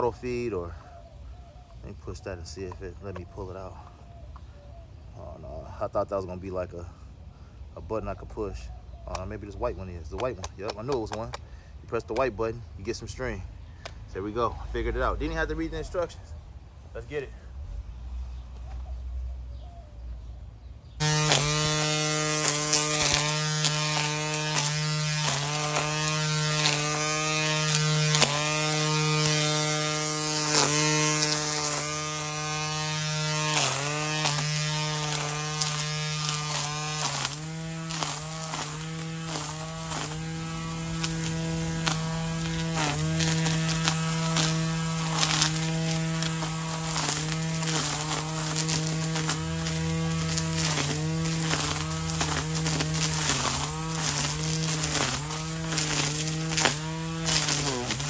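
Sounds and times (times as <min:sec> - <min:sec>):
string trimmer motor humming: 0:21.0 - 0:58.0
trimmer line striking stems: 0:21.0 - 0:58.0.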